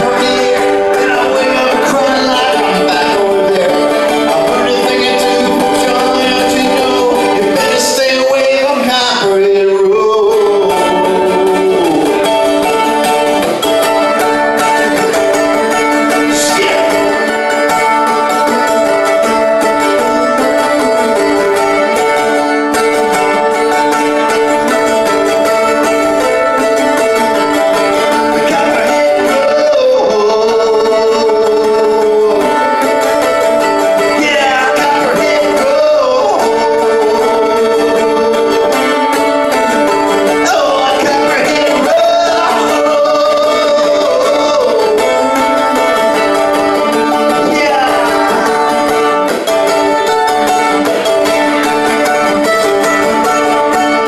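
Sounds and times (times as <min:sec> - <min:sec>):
man singing into microphone: 0:00.0 - 0:13.2, 0:14.0 - 0:22.2, 0:25.0 - 0:50.8
plucked string instrument: 0:00.0 - 0:54.0.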